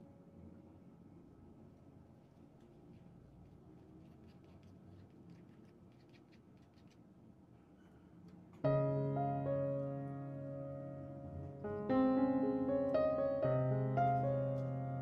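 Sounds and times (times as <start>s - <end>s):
piano chord: 8.6s - 15.0s.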